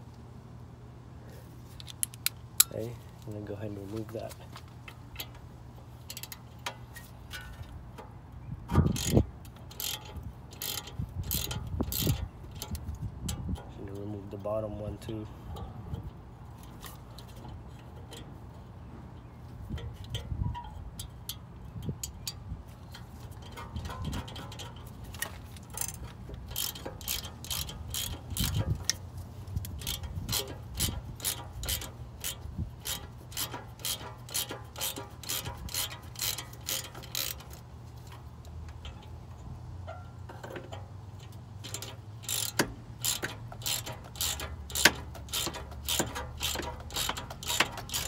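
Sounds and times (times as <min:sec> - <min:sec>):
hand ratchet clicking: 0:08.8 - 0:13.7, 0:19.8 - 0:29.0, 0:29.6 - 0:39.2, 0:40.4 - 0:48.0.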